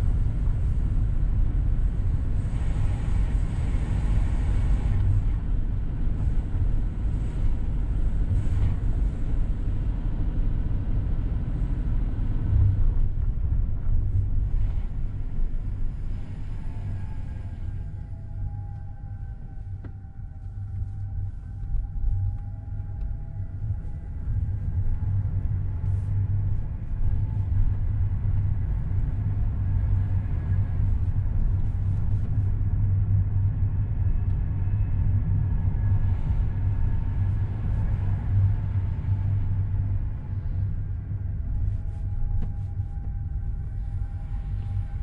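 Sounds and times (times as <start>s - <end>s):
car engine and road rumble: 0.0s - 45.0s.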